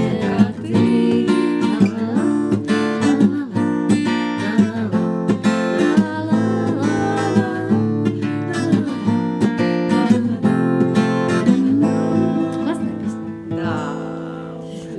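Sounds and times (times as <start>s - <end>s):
acoustic guitar strumming chords: 0.0s - 14.9s.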